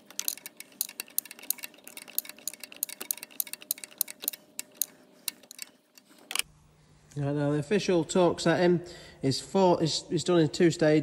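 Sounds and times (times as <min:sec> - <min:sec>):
ratchet clicking: 0:00.0 - 0:06.4.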